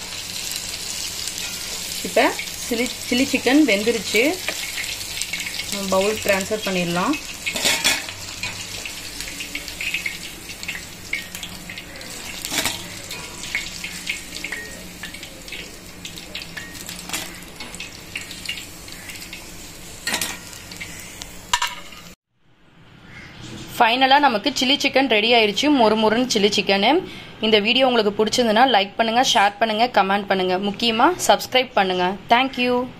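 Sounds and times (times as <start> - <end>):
hot oil sizzling: 0.0 - 22.2
spatula clinking on metal: 1.4 - 1.9, 9.9 - 15.7, 20.0 - 20.6.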